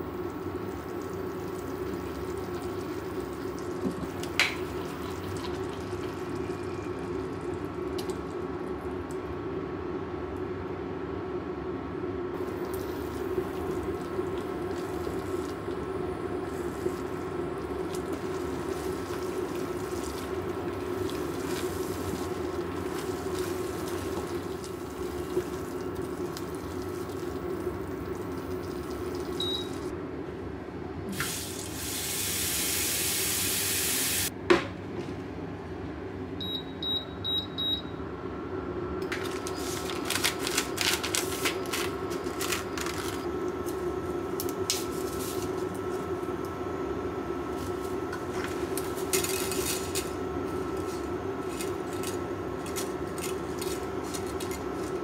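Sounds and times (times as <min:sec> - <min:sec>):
hob humming: 0:12.3 - 0:29.9.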